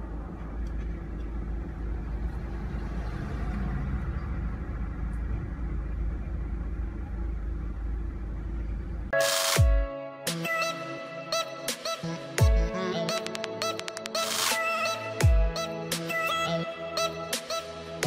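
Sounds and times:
electronic music: 9.1 - 18.0.

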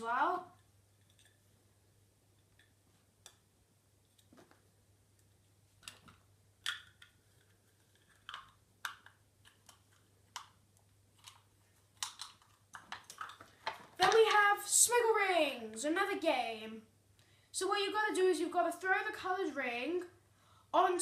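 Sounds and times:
plastic packaging clicks and rustles: 5.8 - 14.4.

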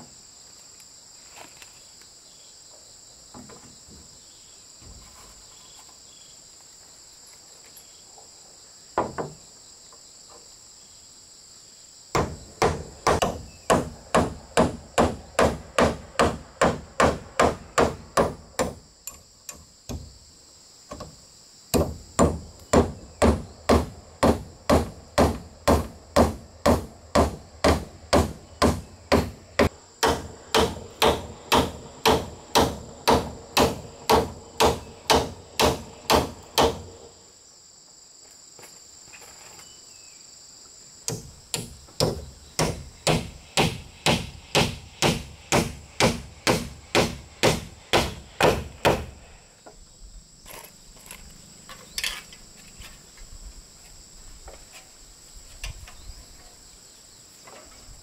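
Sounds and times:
crickets chirping: 0.0 - 58.0
steady hammering: 12.1 - 20.1, 21.7 - 37.1, 41.1 - 49.3.

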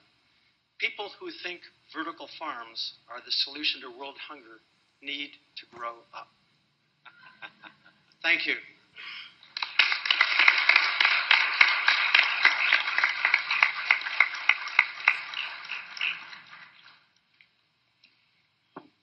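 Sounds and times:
audience applauding: 9.4 - 17.2.

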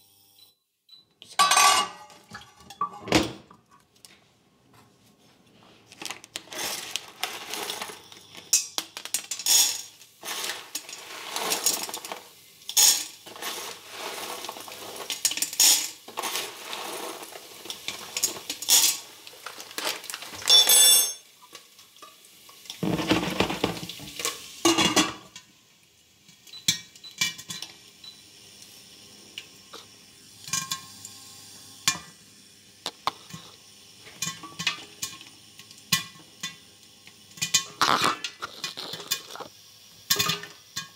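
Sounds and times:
popcorn kernels rattling in metal pot: 6.1 - 21.2, 22.6 - 25.1, 37.3 - 40.9.

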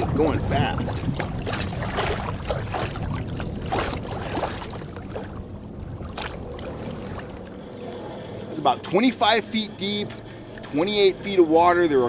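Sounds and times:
water lapping against kayak hull: 0.0 - 8.1
low steady hum: 0.0 - 12.0.

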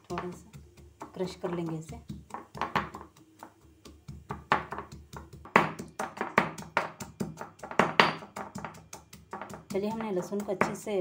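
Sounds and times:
pestle pounding in mortar: 0.0 - 11.0.

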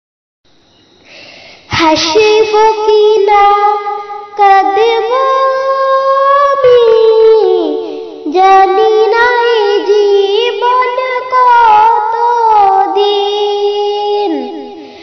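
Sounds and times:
woman breathing: 1.0 - 1.7, 14.7 - 15.0
woman singing unaccompanied: 1.7 - 15.0.

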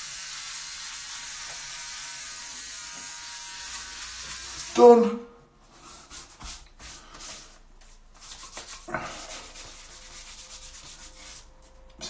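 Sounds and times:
hand rubbing shaved scalp: 5.8 - 12.0.

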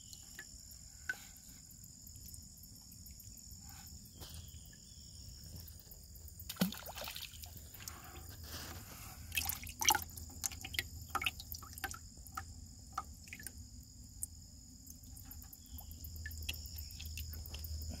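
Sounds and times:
crickets trilling: 0.0 - 18.0
water splashing in bucket: 6.5 - 8.0, 9.3 - 13.5.

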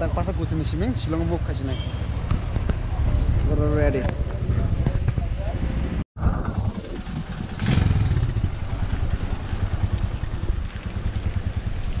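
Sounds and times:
wind rushing over microphone: 2.2 - 12.0
motorcycle engine running: 6.3 - 12.0.

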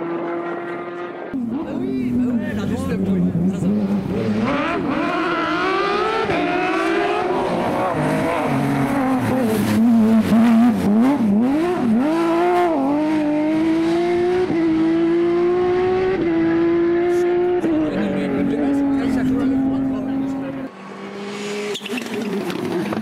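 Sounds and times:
rally car engine accelerating: 0.0 - 23.0.

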